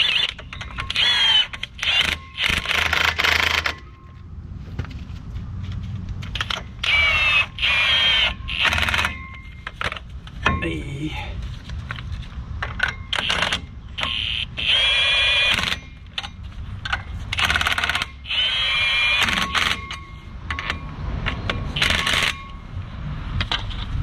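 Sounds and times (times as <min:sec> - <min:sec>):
impact wrench whine and rattle: 0:00.0 - 0:04.2, 0:06.2 - 0:10.6, 0:11.6 - 0:24.0.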